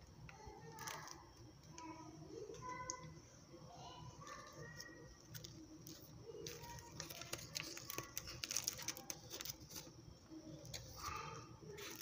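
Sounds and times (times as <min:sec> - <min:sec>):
plastic packaging crackling: 0:00.6 - 0:01.8, 0:04.2 - 0:12.0.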